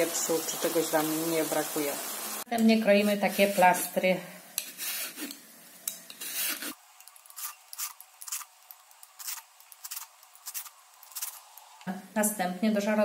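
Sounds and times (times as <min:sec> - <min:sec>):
peeler scraping vegetable: 0:03.0 - 0:04.0, 0:04.6 - 0:05.4, 0:06.1 - 0:11.6.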